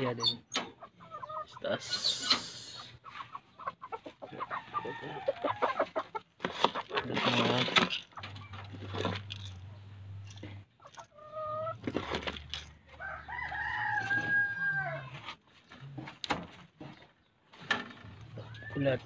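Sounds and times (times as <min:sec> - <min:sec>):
rooster crowing: 0:04.5 - 0:05.8, 0:13.0 - 0:15.1.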